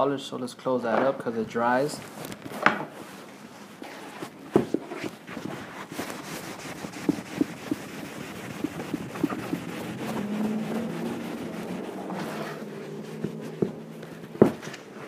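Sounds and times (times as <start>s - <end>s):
rag buffing leather boot: 4.5s - 15.0s.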